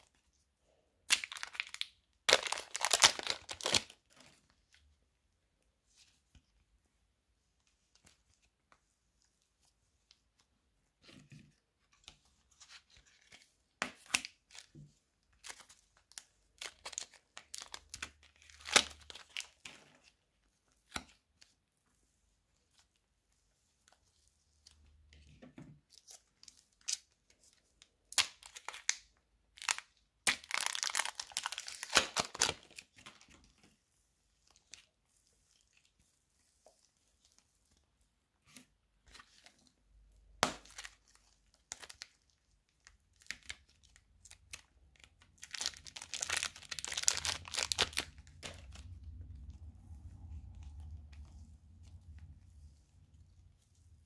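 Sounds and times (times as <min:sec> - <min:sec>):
modelling clay crackling and tearing: 0:01.1 - 0:04.6, 0:12.6 - 0:20.2, 0:28.1 - 0:33.6, 0:38.4 - 0:54.0.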